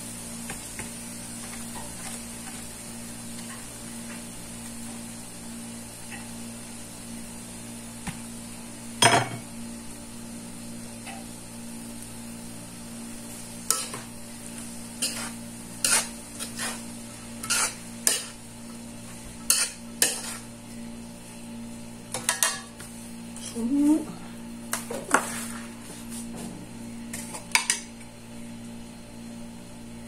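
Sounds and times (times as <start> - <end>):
utensil scraping a pan: 15.0 - 18.4, 19.4 - 20.5.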